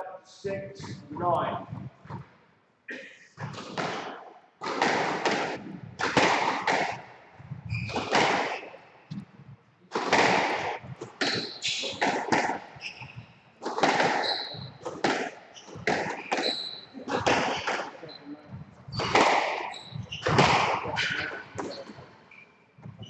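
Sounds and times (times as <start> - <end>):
squash ball struck by rackets: 3.4 - 7.1, 7.7 - 8.7, 9.9 - 17.9, 18.9 - 21.8
ball hitting court walls: 3.4 - 9.3, 9.9 - 18.0, 18.9 - 22.1
shoes squeaking on wooden floor: 6.6 - 9.4, 10.0 - 23.0.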